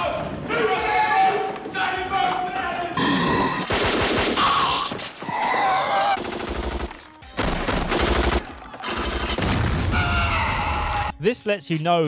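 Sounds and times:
automatic gunfire bursts: 6.2 - 9.4.

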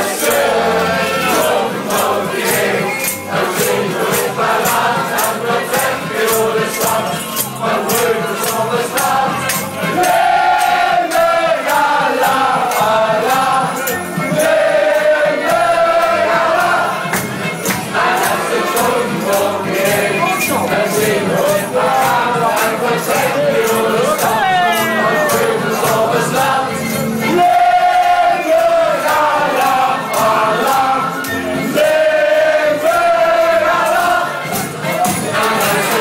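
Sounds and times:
loud party music: 0.0 - 36.0
people singing: 0.0 - 36.0.

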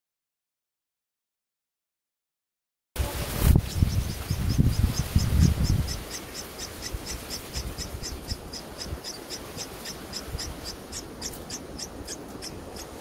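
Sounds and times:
steady background hiss: 3.0 - 13.0
bird nestlings cheeping: 3.5 - 13.0.

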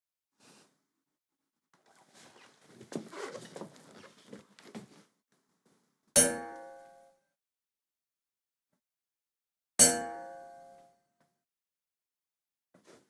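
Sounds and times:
soft rustles and taps: 1.8 - 5.8
sharp metallic clang: 6.2 - 7.0, 9.8 - 10.6.

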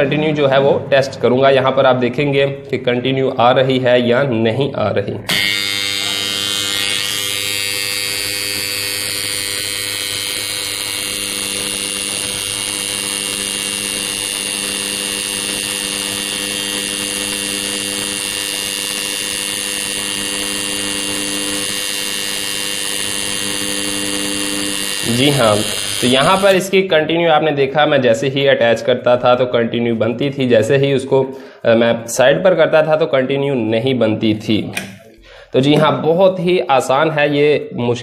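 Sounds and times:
contactor coil buzzing hum: 5.2 - 26.9.

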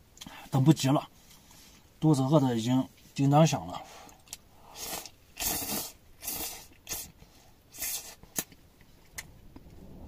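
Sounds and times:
person slurping noodles: 4.7 - 8.2.

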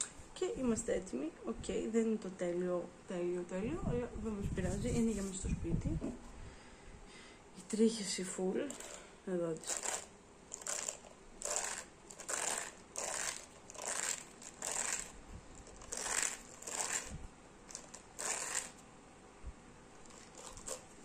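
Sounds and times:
hairbrush bristles rasping: 8.7 - 9.0, 9.6 - 18.8, 20.0 - 21.0.

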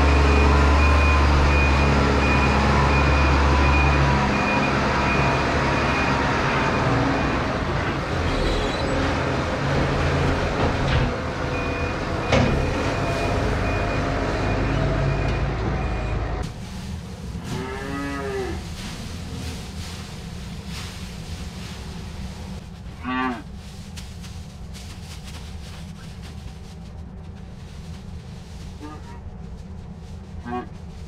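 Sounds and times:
tractor engine running: 0.0 - 17.5
cow mooing: 17.5 - 18.6.

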